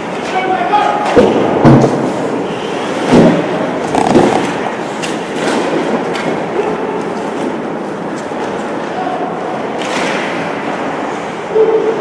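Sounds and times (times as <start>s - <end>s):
steady rumbling din: 3.7s - 5.0s.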